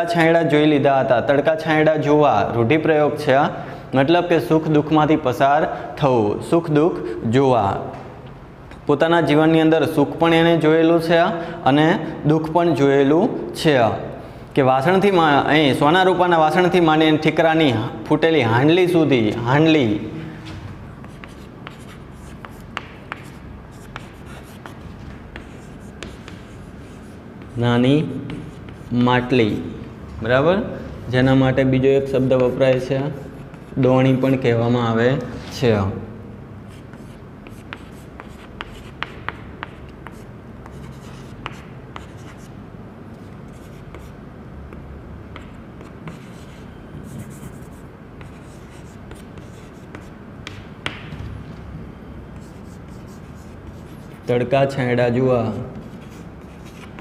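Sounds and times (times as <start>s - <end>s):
chalk tapping on blackboard: 21.0s - 27.6s, 36.8s - 42.5s, 44.7s - 46.6s, 47.2s - 51.1s
chalk scratching on blackboard: 21.0s - 27.7s, 28.3s - 29.0s, 32.2s - 33.9s, 36.7s - 42.5s, 43.2s - 44.2s, 45.4s - 50.6s, 52.4s - 54.4s, 55.8s - 57.0s.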